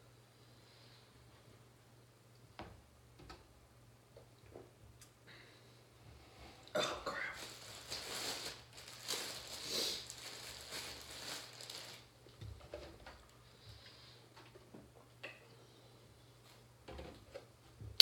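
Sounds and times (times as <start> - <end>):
bag rustling and crinkling: 7.3 - 12.2.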